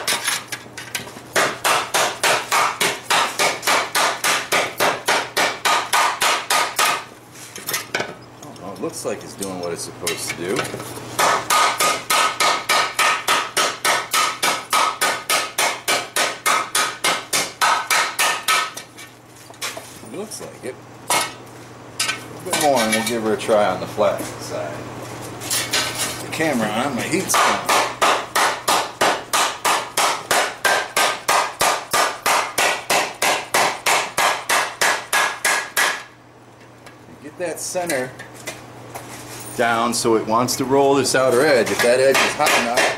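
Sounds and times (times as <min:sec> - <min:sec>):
hammer striking hot steel: 0:01.4 - 0:07.1, 0:11.2 - 0:18.8, 0:27.3 - 0:36.1, 0:41.6 - 0:42.9.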